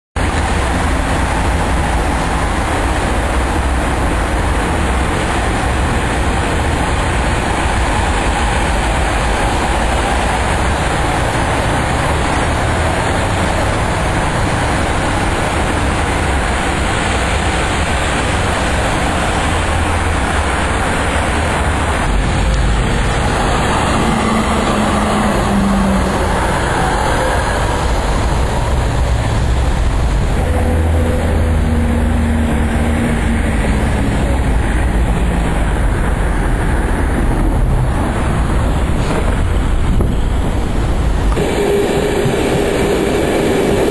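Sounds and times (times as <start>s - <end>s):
electric vehicle rumble: 0.2s - 43.9s.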